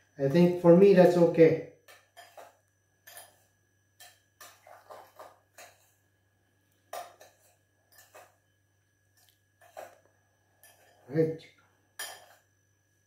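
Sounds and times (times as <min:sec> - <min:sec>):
utensil scraping glass bowl: 0:04.4 - 0:06.0, 0:10.6 - 0:11.1.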